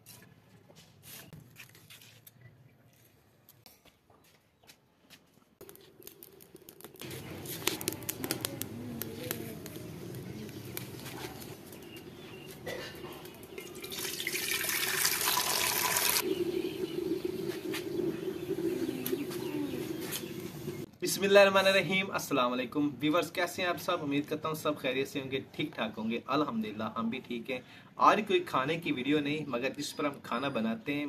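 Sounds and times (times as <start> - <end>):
crackling clicks: 5.6 - 12.0
water pouring into a metal pot: 13.5 - 20.0
low hum: 16.2 - 20.9.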